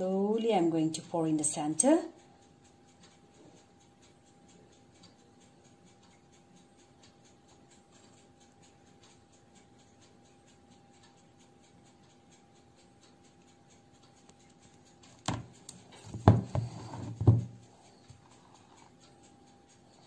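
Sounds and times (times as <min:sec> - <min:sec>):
faint steady hum: 0:00.0 - 0:20.0
ladle and cake tin knocking: 0:15.2 - 0:17.6.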